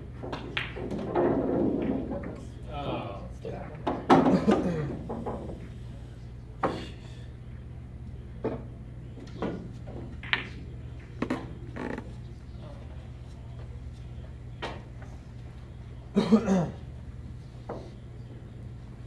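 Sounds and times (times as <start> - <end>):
pool balls clacking: 0.2 - 2.4, 3.8 - 5.7, 8.4 - 12.9.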